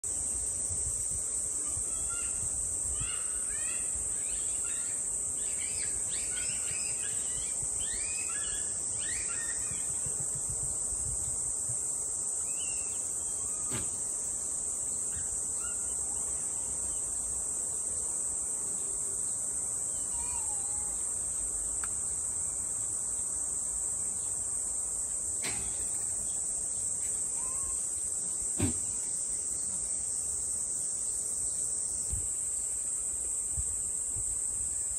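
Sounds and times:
insects chirring: 0:00.0 - 0:34.9
bird chirps: 0:03.0 - 0:10.1
sharp knock: 0:13.7 - 0:14.0, 0:25.4 - 0:25.8, 0:28.6 - 0:28.9.

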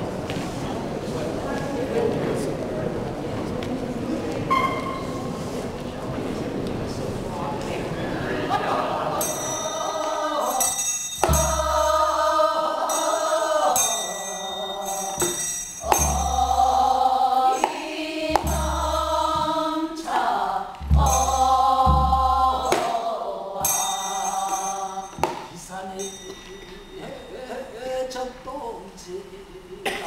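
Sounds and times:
women singing together: 0:08.4 - 0:25.5
barrel drum beats: 0:09.3 - 0:13.2, 0:15.2 - 0:26.4.

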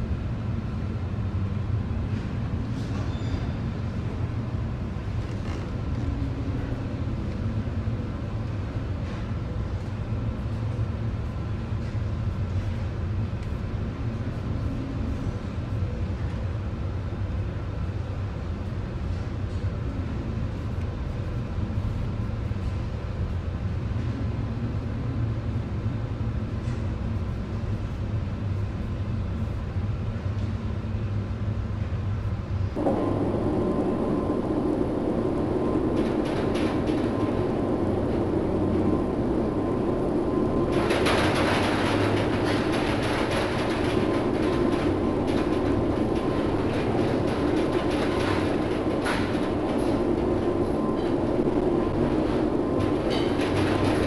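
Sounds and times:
ship engine and hull rumble: 0:00.0 - 0:54.0
wind: 0:00.0 - 0:54.0
wind rushing: 0:32.8 - 0:54.0.

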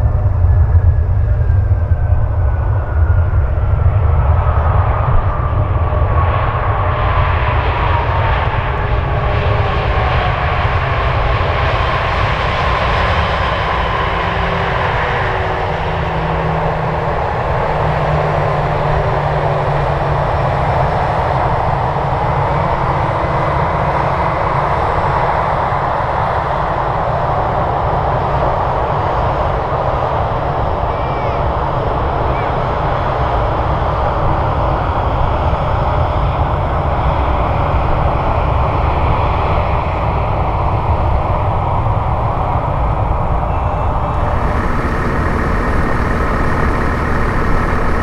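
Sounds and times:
jet engines whining: 0:00.0 - 0:25.2, 0:39.7 - 0:48.0.

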